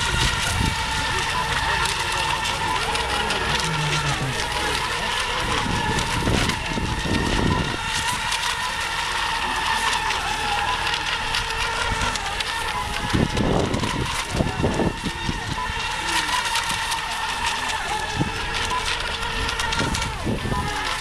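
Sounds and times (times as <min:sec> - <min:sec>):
wind rumble on microphone: 0:00.0 - 0:01.3, 0:05.4 - 0:08.3, 0:12.8 - 0:15.8, 0:19.4 - 0:20.8
rc boats high-pitched whine: 0:00.0 - 0:21.0.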